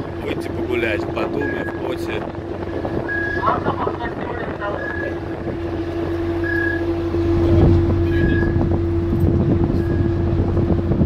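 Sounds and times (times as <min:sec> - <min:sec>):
ship engines droning: 0:00.0 - 0:11.0
wind on microphone: 0:00.0 - 0:11.0
short high beep: 0:08.0 - 0:08.6.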